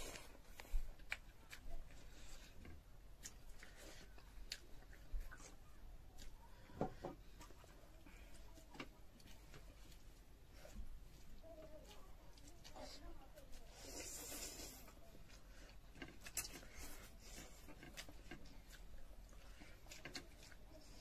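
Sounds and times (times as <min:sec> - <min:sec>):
chewing and slurping: 0:00.0 - 0:21.0
fingers working food on plates: 0:13.4 - 0:21.0.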